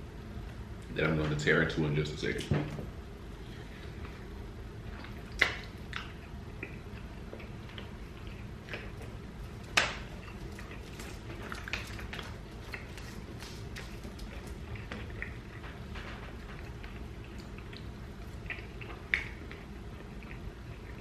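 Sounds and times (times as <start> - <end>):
chewing and lip smacking: 4.9 - 15.7, 16.5 - 21.0.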